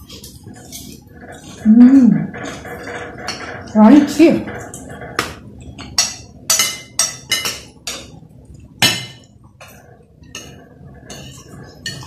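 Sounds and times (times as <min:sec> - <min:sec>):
cutlery clinking on glass plates: 0:02.4 - 0:08.2, 0:08.8 - 0:12.0.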